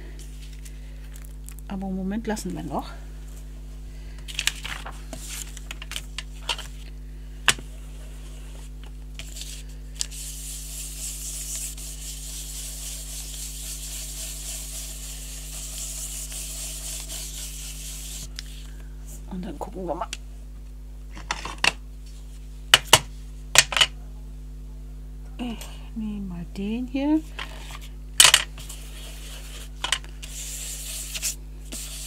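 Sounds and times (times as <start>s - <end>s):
coloring rubbing over paper: 7.7s - 18.6s, 28.6s - 32.0s.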